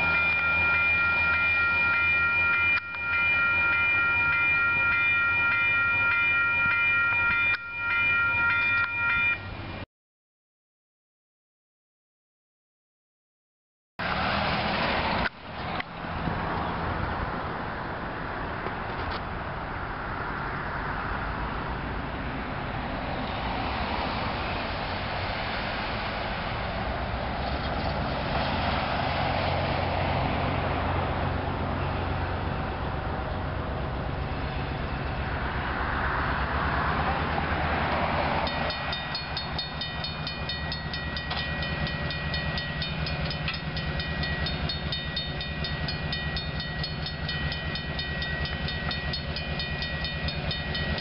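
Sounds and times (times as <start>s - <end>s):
electronic crossing bell ringing: 0.0s - 9.6s, 38.4s - 51.0s
car approaching on road: 14.0s - 51.0s.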